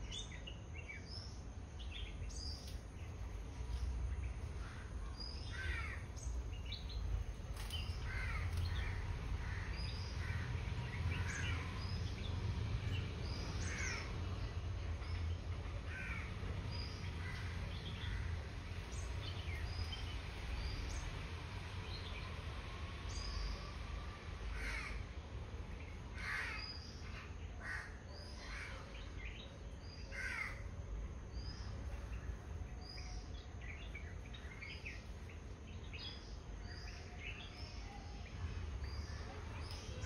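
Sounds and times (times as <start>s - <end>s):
low steady rumble: 0.0s - 40.0s
harsh bird calls: 4.2s - 21.3s, 25.8s - 30.7s.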